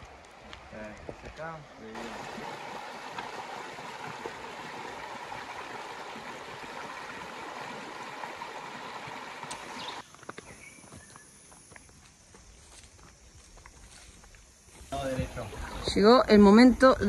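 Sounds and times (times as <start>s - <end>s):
water rushing over rocks: 2.0s - 10.0s.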